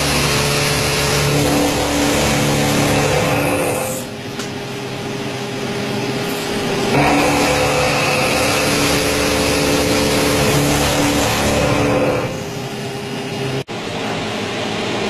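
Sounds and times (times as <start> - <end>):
milling cutter cutting metal: 0.0 - 4.2, 6.3 - 12.7.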